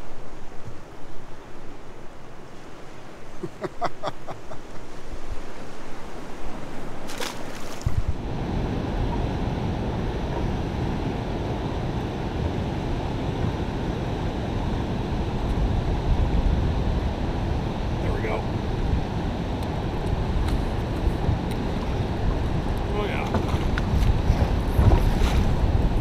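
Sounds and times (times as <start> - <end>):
water around a boat: 0.0 - 26.0
wind buffeting microphone: 4.7 - 26.0.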